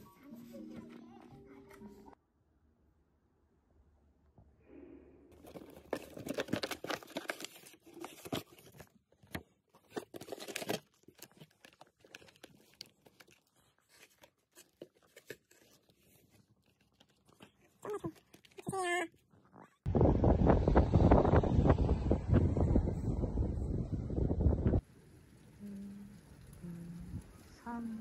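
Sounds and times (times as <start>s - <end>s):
plastic packaging crinkling: 5.4s - 18.7s.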